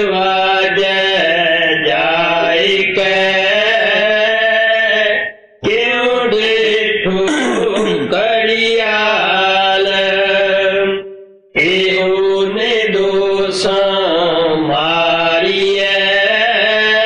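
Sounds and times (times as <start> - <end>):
man singing unaccompanied: 0.0 - 17.0.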